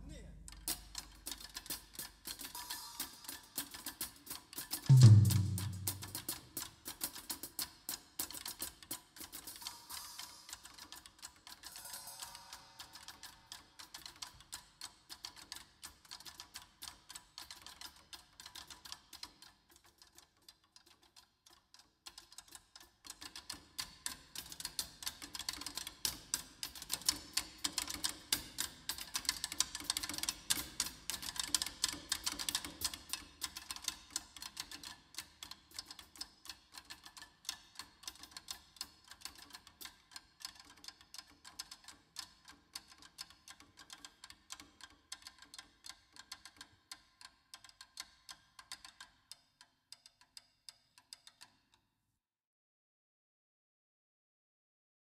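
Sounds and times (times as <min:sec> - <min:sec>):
drumstick strokes on drums: 0:00.5 - 0:13.6.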